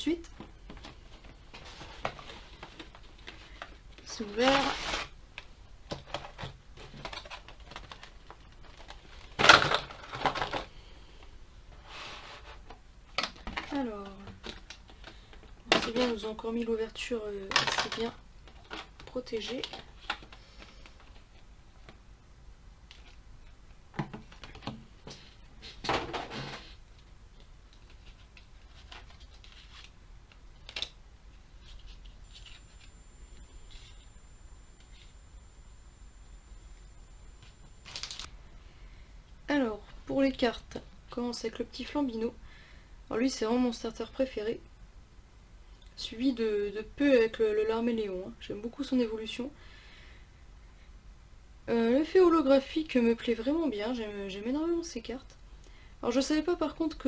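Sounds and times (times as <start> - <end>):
plastic packaging crinkling: 37.8 - 38.3.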